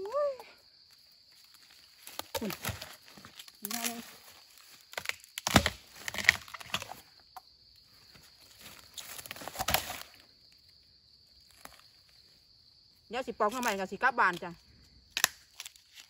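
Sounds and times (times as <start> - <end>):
bamboo shoots snapping: 2.0 - 7.0, 9.0 - 10.2, 15.1 - 16.0.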